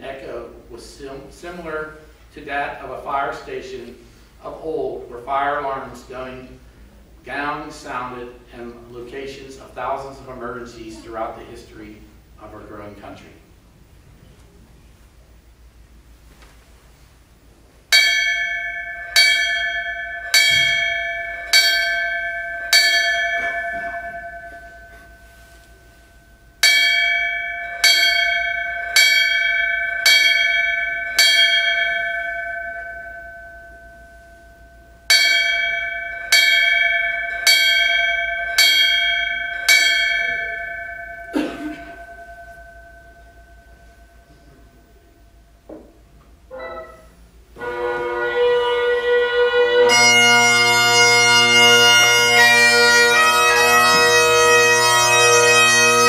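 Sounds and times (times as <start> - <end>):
brass bell strokes ringing: 17.9 - 45.7, 46.4 - 56.0.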